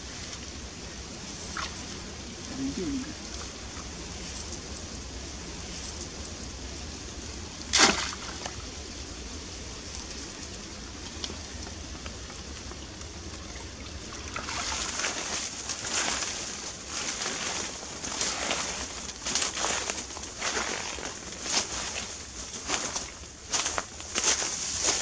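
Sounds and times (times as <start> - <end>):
water sloshing and trickling: 0.0 - 5.1, 7.6 - 8.9, 9.8 - 25.0
sharp water splash: 7.7 - 8.6.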